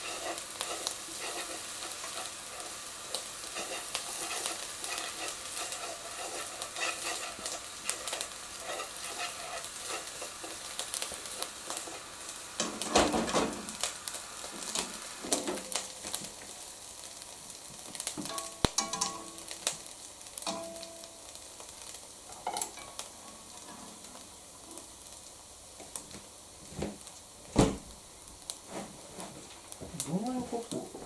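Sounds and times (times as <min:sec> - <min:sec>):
chopsticks scraping a pan: 0:00.0 - 0:10.8
beans sizzling in a frying pan: 0:00.0 - 0:31.0.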